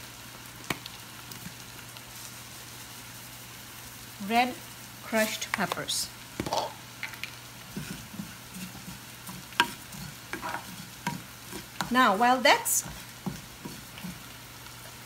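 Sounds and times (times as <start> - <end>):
seeds roasting in a hot pan: 0.0 - 15.0.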